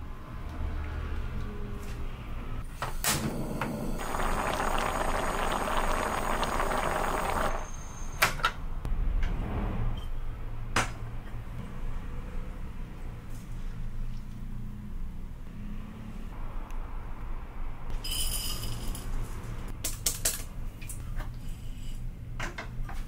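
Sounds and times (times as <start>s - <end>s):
soup bubbling: 3.8s - 7.7s.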